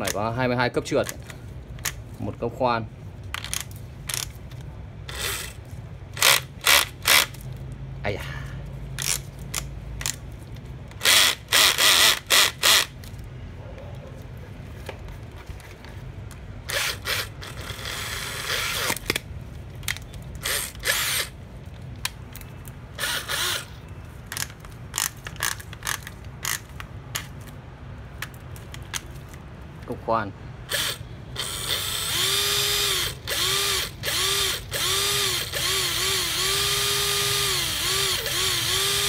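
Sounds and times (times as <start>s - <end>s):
drill clutch ring clicking: 3.3s - 4.4s, 9.0s - 10.2s, 10.9s - 13.0s, 19.8s - 21.4s, 24.3s - 27.4s, 30.7s - 39.0s
cordless drill bursts: 5.1s - 5.6s, 6.2s - 7.4s, 11.0s - 13.0s, 16.7s - 19.0s, 20.4s - 21.4s, 23.0s - 23.8s, 30.7s - 39.0s.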